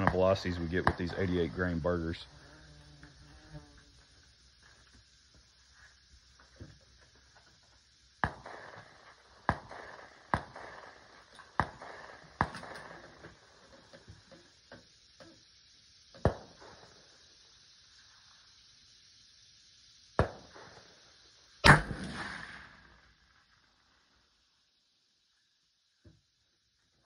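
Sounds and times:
gunshots with echo: 21.6s - 23.0s.

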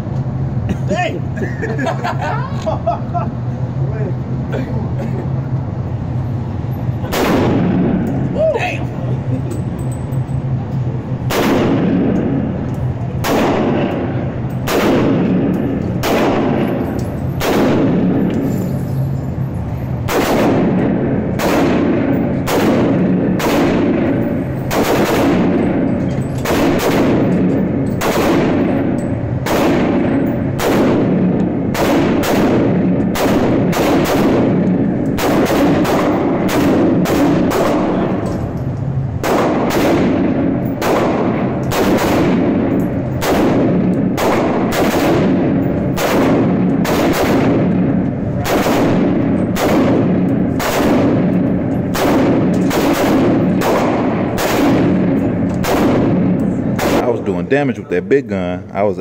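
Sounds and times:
rifle shots echoing indoors: 7.1s - 8.1s, 11.2s - 18.5s, 20.0s - 57.2s.

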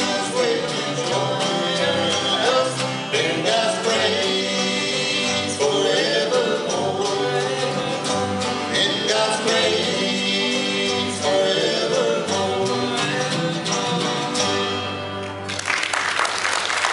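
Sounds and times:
banjo: 0.0s - 15.4s
mandolin: 0.0s - 15.5s
acoustic guitars: 0.0s - 16.9s.

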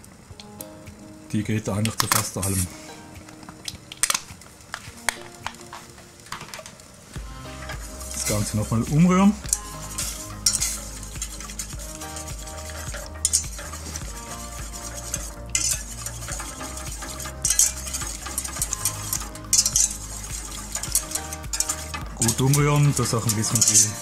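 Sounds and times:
whisk swishing and scraping pan: 7.4s - 24.0s.

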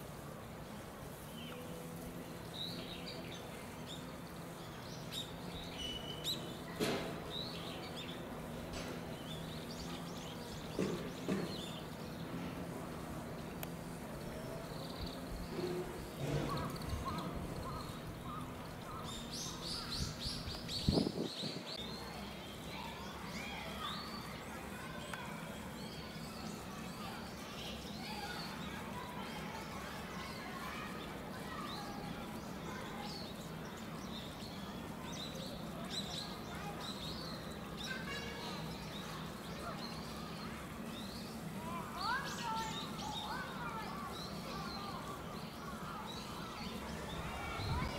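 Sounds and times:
faint distant voices: 0.0s - 47.9s
small birds chirping: 0.0s - 47.9s
low hum: 46.8s - 47.9s.

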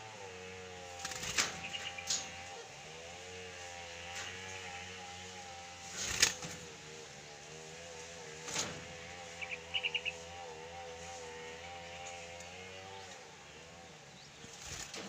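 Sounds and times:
wings flapping thumps: 1.0s - 2.4s, 5.9s - 6.7s, 14.5s - 15.0s
high bird chirps: 9.3s - 10.3s.

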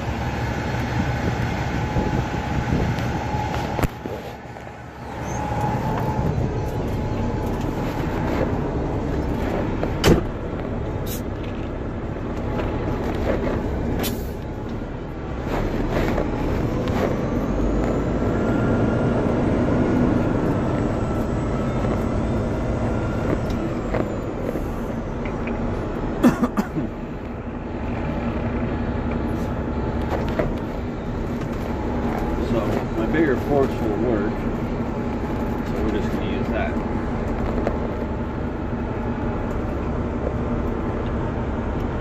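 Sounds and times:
faint whine: 0.0s - 26.2s
diesel engine running: 0.0s - 42.0s.

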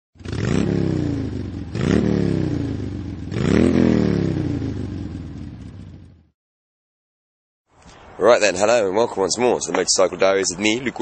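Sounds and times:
motorcycle engine revving: 0.2s - 6.4s.

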